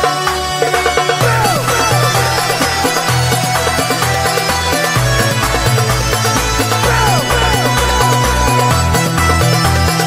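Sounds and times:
background music with pulsing bass: 0.0 - 10.0.

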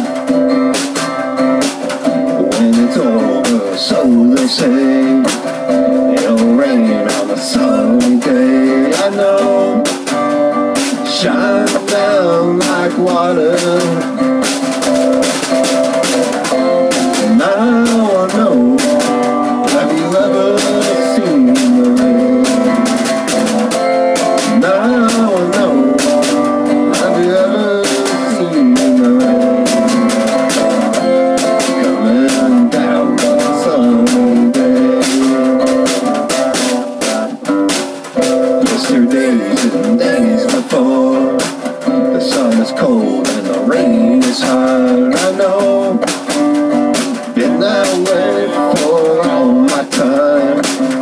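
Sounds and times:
acoustic guitar strumming: 0.0 - 51.0
snare drum beat: 0.0 - 51.0
voices singing: 1.6 - 51.0.

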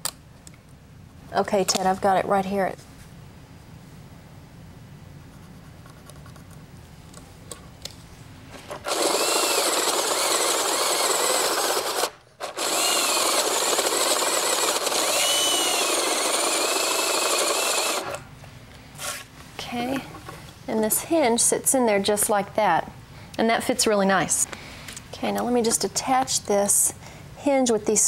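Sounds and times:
power drill boring into wood: 8.8 - 18.2.

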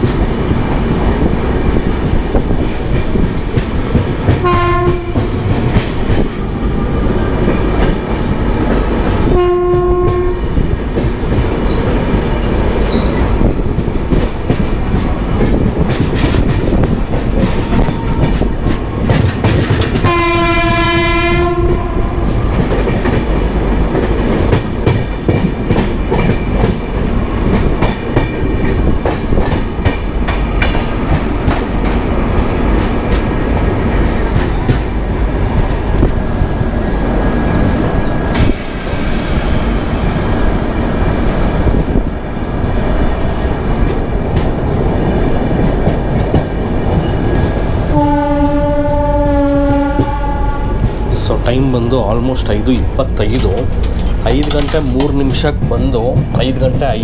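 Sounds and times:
train wheels rumbling on rails: 0.0 - 57.0
train horn blast: 4.4 - 5.4, 9.3 - 10.5, 20.0 - 22.4, 47.9 - 51.1.

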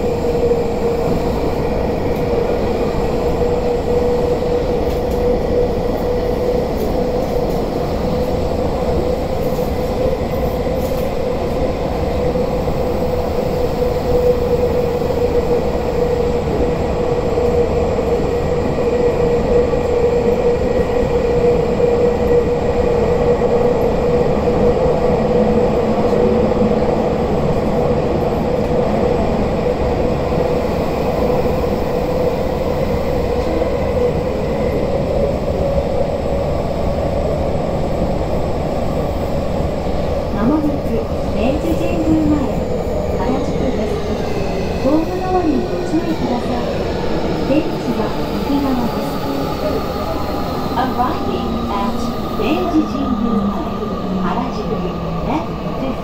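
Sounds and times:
steady train whine: 0.0 - 56.0
subway train rumbling in a tunnel: 0.0 - 56.0.

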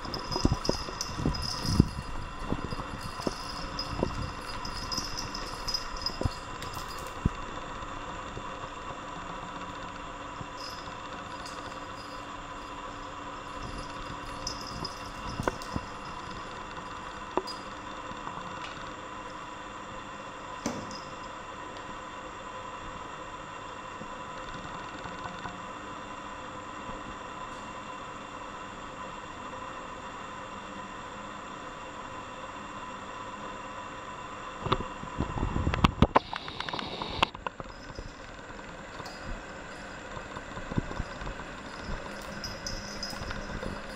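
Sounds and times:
cat running on marble floor: 0.0 - 7.2
background hum and hiss: 0.0 - 43.9.

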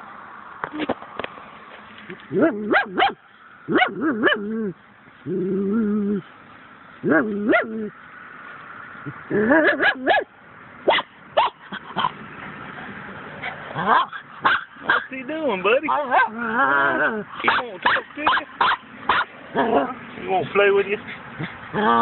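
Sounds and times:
dog whining and yipping: 13.4 - 14.6.

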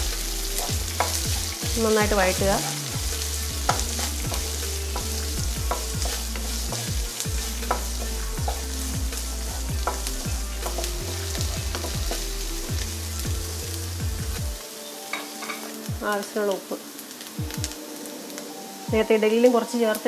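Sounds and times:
onions sizzling in oil: 0.0 - 20.0
wooden spatula scraping a pan: 0.5 - 8.6.

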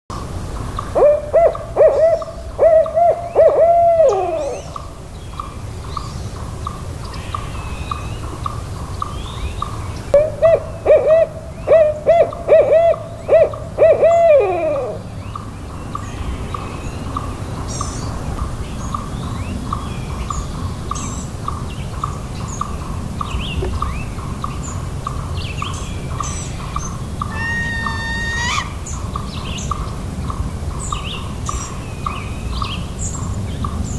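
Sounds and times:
steady pulsing call: 0.7 - 33.9
owl hooting: 0.8 - 4.9, 10.1 - 15.1, 25.6 - 29.3.

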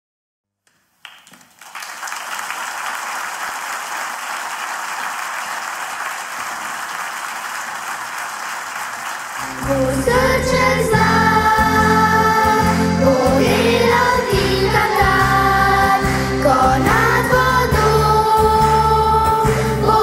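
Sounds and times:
audience applauding: 1.0 - 20.0
band bass line: 9.4 - 20.0
children singing: 9.4 - 20.0.

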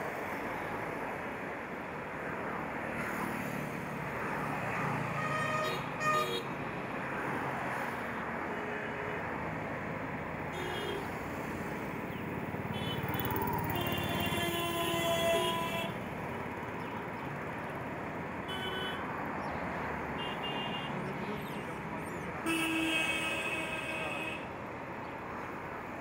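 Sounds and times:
road traffic hum: 0.0 - 26.0
car horn toot: 18.5 - 19.0.

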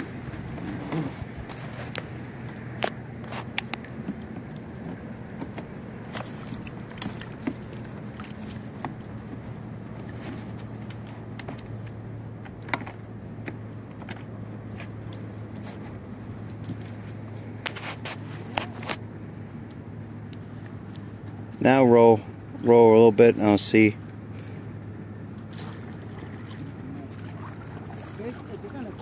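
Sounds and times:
water splashes: 0.0 - 12.1, 20.2 - 29.0
steady low hum: 0.0 - 29.0.

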